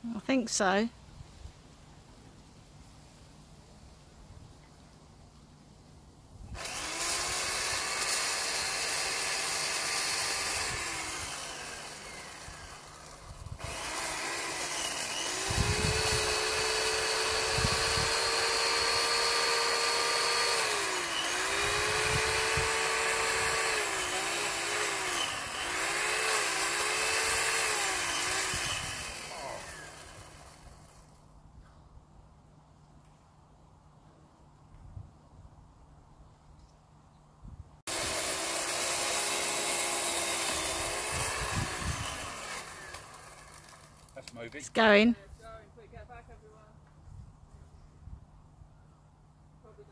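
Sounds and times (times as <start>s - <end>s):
chainsaw cutting wood: 6.5s - 31.2s, 37.9s - 45.0s.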